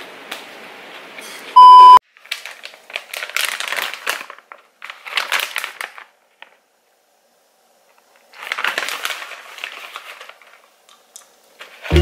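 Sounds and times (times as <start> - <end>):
single-pitch beep: 1.6 - 2.0
plastic snack pouch crinkling: 2.1 - 6.6, 8.0 - 11.9.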